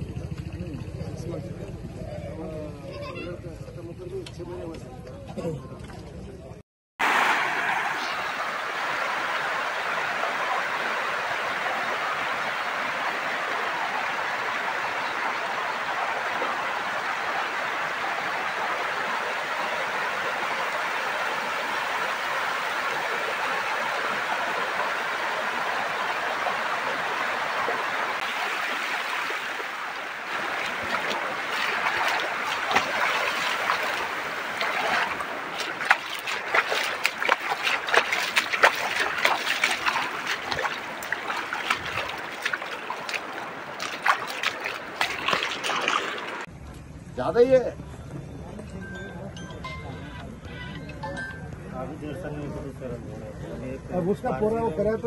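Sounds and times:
water rushing across a field: 0:07.0 - 0:46.5.

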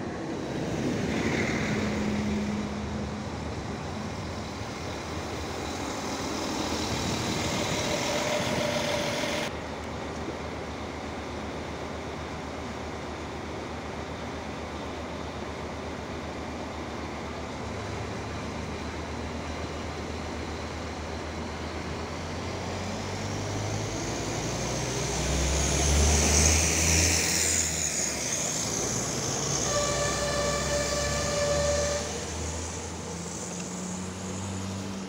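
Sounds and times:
train passing with engine humming: 0:00.0 - 0:35.0
train horn blast: 0:29.4 - 0:32.6.

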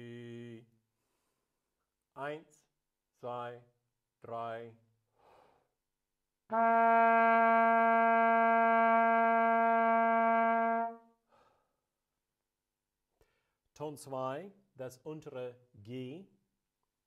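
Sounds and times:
hunting horn long note: 0:06.5 - 0:11.1.

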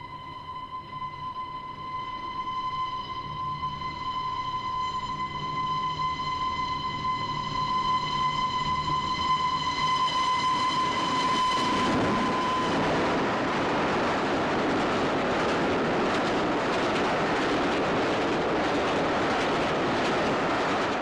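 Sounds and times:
steam train whistle: 0:00.0 - 0:13.9
train rushing and rattling past: 0:03.2 - 0:21.0.

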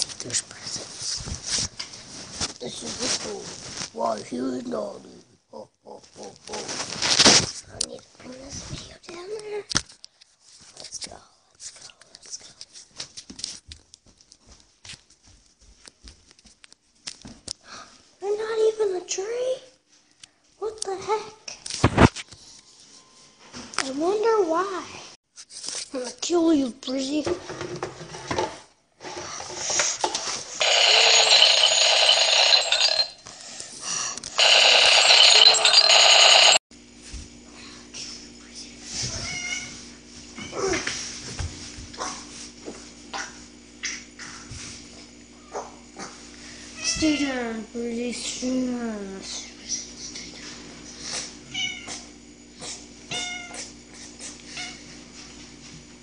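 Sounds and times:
alarm ringing: 0:30.6 - 0:33.2, 0:34.4 - 0:36.6.

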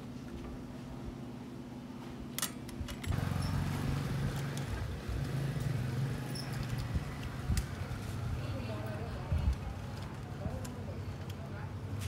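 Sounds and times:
vehicle engine humming: 0:03.1 - 0:12.0.

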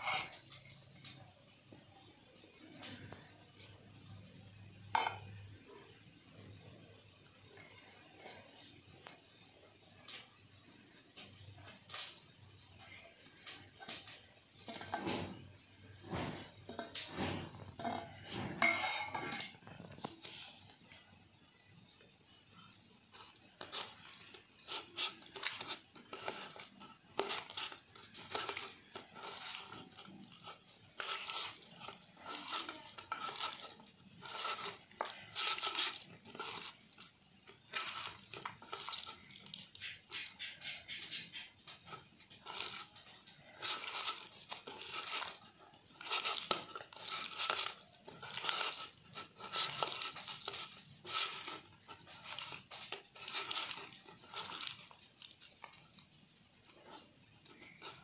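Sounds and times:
scraping against steel bowl: 0:00.0 - 0:00.8, 0:12.9 - 0:21.0, 0:23.1 - 0:58.0
hand squishing wet fish: 0:24.6 - 0:58.0.

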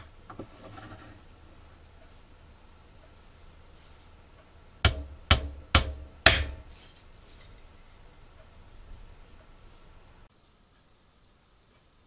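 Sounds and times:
hammer blows ringing: 0:04.8 - 0:06.7.

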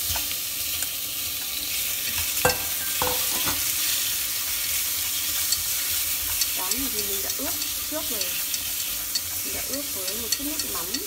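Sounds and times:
fish sizzling in hot oil: 0:00.0 - 0:11.0
utensil knocking against pot: 0:02.5 - 0:03.6.

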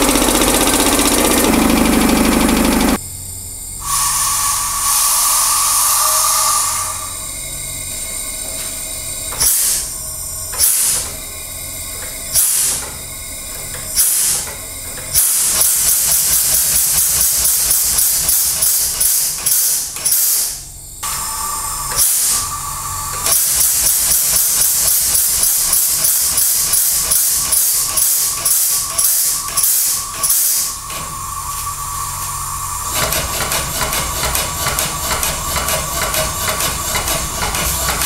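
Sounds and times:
thin whine: 0:00.0 - 0:10.6, 0:21.0 - 0:24.0, 0:28.3 - 0:33.7
engine exhaust hissing puffs: 0:15.2 - 0:38.0.

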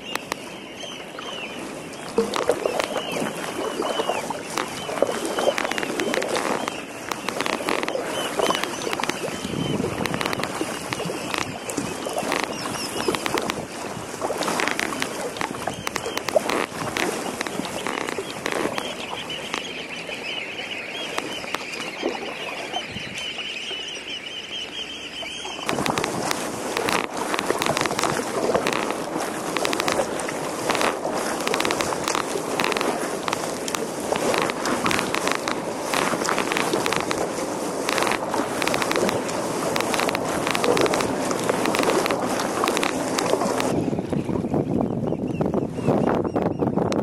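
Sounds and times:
wind on microphone: 0:00.0 - 0:20.2, 0:25.6 - 0:47.0
paddle splashes: 0:00.0 - 0:44.6
water splashing against hull: 0:00.0 - 0:47.0.

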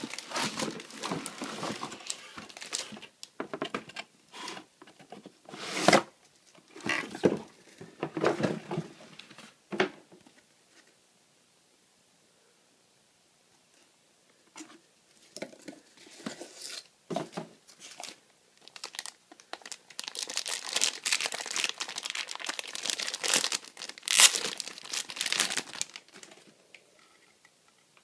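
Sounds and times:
plastic bag crinkling and tearing: 0:00.0 - 0:03.2, 0:17.8 - 0:26.3.

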